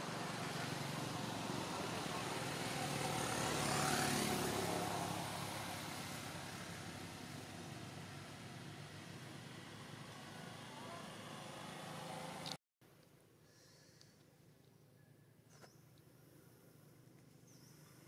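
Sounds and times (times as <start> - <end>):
motor vehicle passing by: 0.0 - 12.6.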